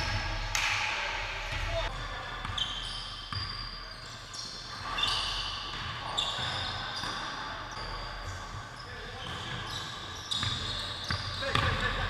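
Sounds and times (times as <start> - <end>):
sneakers squeaking on hardwood floor: 1.5 - 12.0
basketball bouncing: 10.4 - 11.8.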